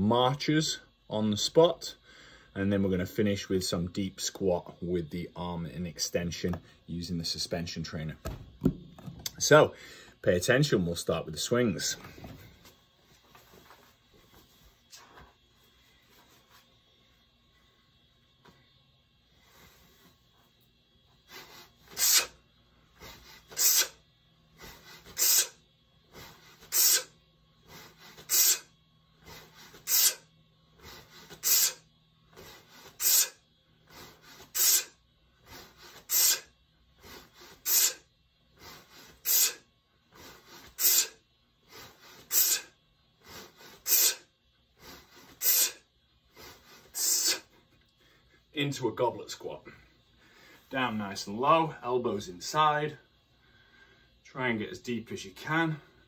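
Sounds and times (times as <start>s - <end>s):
sharp hissing exhales: 21.3s - 47.6s
soft breaths: 49.6s - 50.8s, 52.9s - 54.3s.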